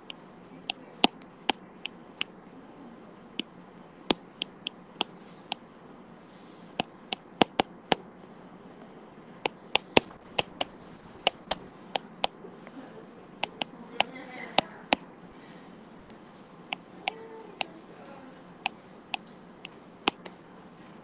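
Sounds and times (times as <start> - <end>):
stylus tapping on tablet screen: 4.1 - 5.1, 6.8 - 8.0, 9.5 - 12.4, 13.4 - 13.7.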